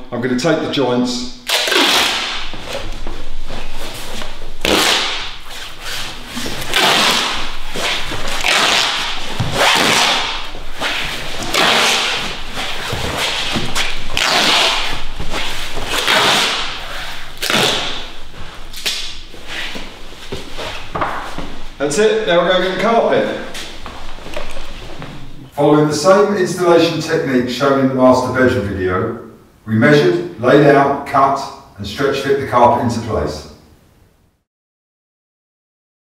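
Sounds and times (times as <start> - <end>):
tape ripping off roll: 1.5 - 3.0, 4.6 - 19.8.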